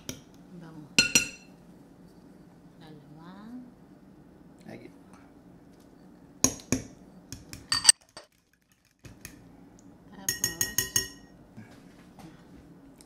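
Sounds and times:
forks clinking on glass bowls: 7.7 - 8.3, 10.2 - 11.3.

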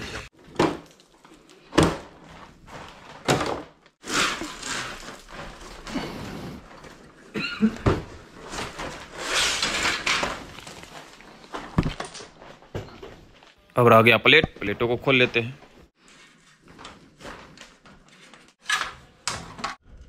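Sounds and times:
rustling: 8.1 - 13.7.

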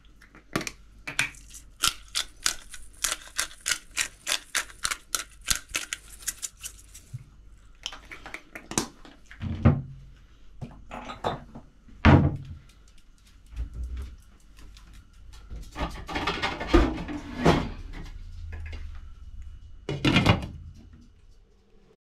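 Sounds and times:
kitchen knocks and thumps: 15.7 - 18.0, 19.9 - 20.8.

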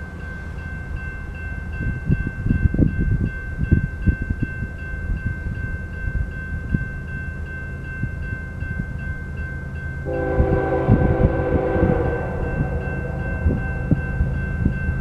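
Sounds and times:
crossing bell ringing: 0.0 - 15.0
low rumble: 10.1 - 15.0
train air horn: 10.1 - 15.0.

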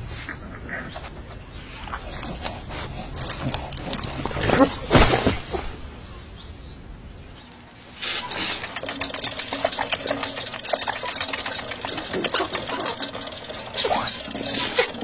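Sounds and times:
hamster wheel clattering: 8.1 - 15.0.

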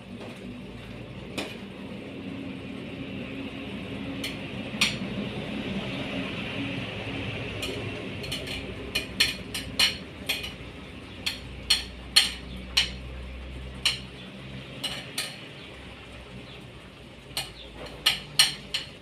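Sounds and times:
metal ladle clinking on pan: 7.6 - 13.0, 14.8 - 15.5.

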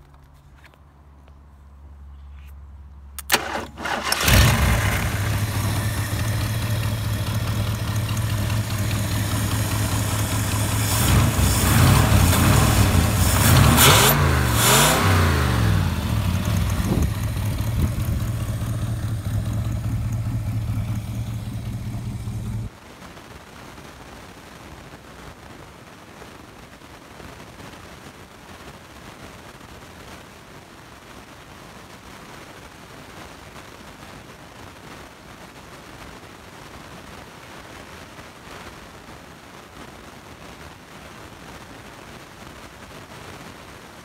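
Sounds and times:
ignition click: 3.2 - 4.6
pickup engine starting and revving: 3.2 - 22.7.

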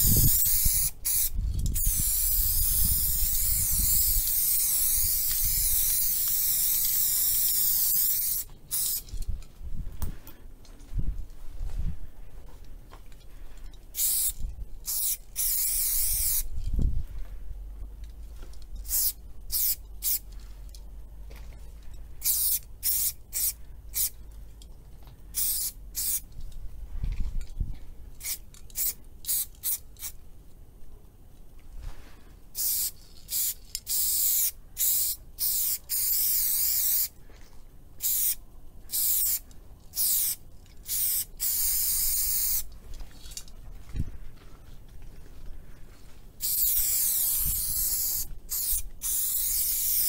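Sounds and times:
spray paint can hissing: 0.0 - 9.2, 13.9 - 16.5, 18.8 - 20.2, 22.2 - 24.2, 25.4 - 26.3, 28.2 - 30.2, 32.6 - 37.2, 38.0 - 42.7, 46.4 - 50.0.

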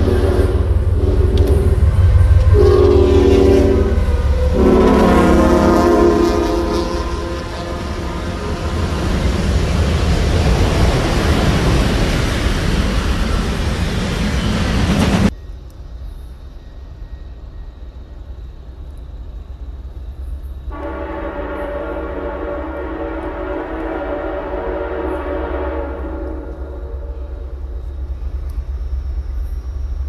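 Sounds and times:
locomotive air horn: 0.0 - 9.3, 20.7 - 27.6
freight train rumbling past: 0.0 - 30.0.

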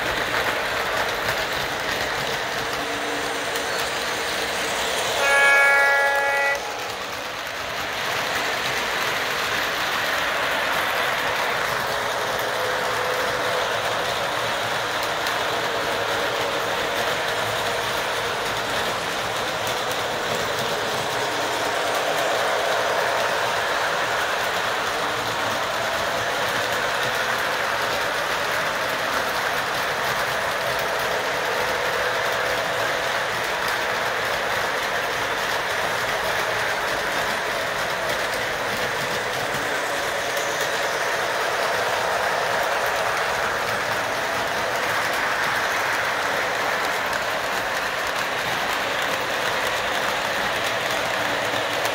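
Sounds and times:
model train whirring on rails: 0.0 - 51.9.

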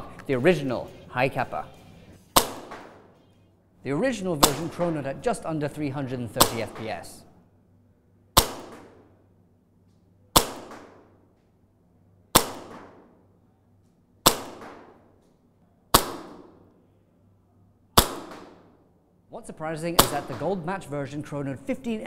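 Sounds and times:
airsoft pistol shots: 2.3 - 3.2, 4.4 - 5.0, 6.4 - 7.1, 8.3 - 9.1, 10.3 - 11.2, 12.3 - 13.2, 14.2 - 15.1, 15.9 - 16.7, 18.0 - 18.7, 20.0 - 20.6.

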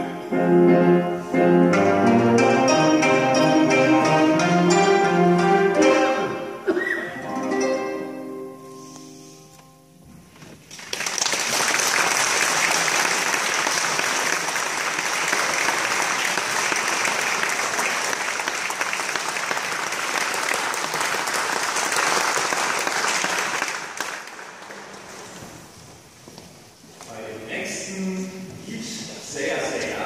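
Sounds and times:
audience applause: 10.7 - 25.4.

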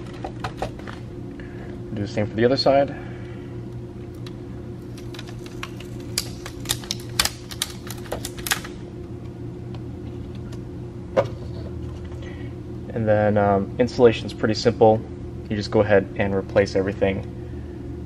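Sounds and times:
steady low hum: 0.0 - 18.0
adhesive peeling clicks and crackles: 4.1 - 8.8.

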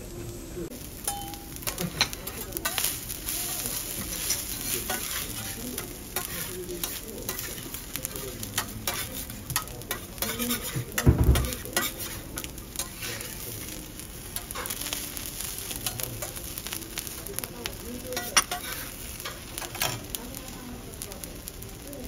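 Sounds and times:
oil and garlic sizzling: 0.0 - 22.0
metal spatula clicking and scraping: 1.1 - 3.0, 4.0 - 13.4, 14.4 - 14.9, 15.8 - 16.4, 18.2 - 20.0
dull thump: 11.1 - 11.6.

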